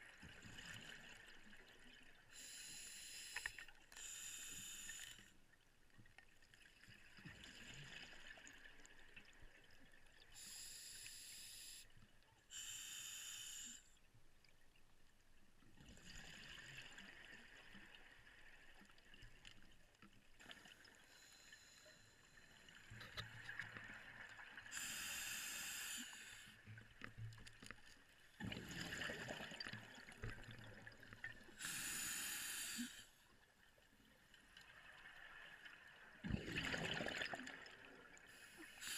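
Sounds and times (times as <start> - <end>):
regulator hiss: 12.6 - 13.8, 24.8 - 26.5, 31.6 - 33.0
exhaled bubbles rushing: 36.2 - 37.7.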